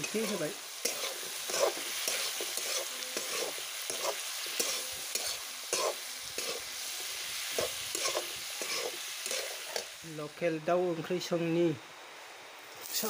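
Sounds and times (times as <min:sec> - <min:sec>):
spatula scraping and knocking pan: 0:00.0 - 0:06.6, 0:07.6 - 0:09.9
food sizzling in hot oil: 0:00.0 - 0:11.5, 0:12.6 - 0:13.0.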